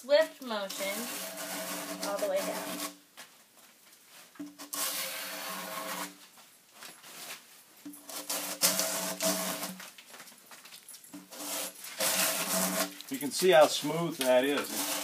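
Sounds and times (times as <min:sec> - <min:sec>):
drawknife scraping bark off log: 0:00.7 - 0:03.0, 0:04.4 - 0:06.2, 0:08.0 - 0:09.8, 0:11.2 - 0:13.1, 0:13.8 - 0:15.0.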